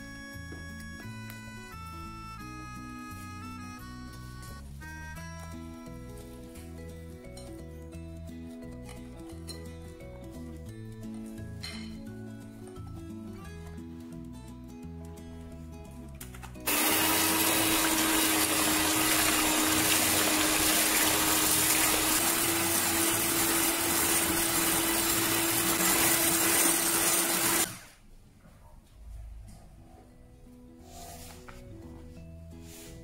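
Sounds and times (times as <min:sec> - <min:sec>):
electric hand mixer whining: 0:16.7 - 0:27.9.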